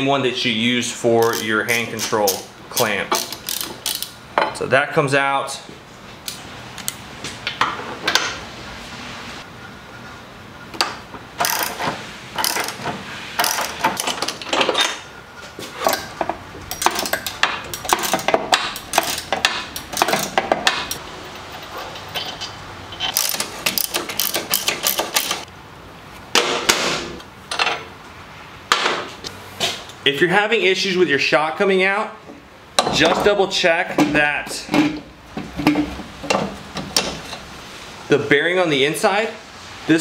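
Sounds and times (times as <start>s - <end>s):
hand tools clicking and clanking: 1.2s - 4.6s, 10.8s - 25.5s, 32.8s - 37.5s.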